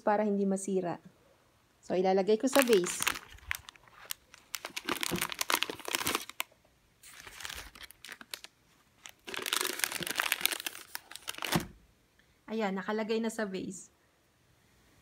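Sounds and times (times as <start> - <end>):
bouquet wrapping crinkling: 2.4 - 11.7.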